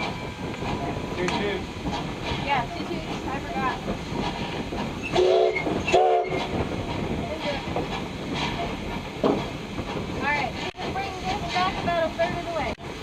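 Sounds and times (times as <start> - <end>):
locomotive rumble and hiss: 0.0 - 13.0
steam locomotive whistle blasts: 5.1 - 6.5.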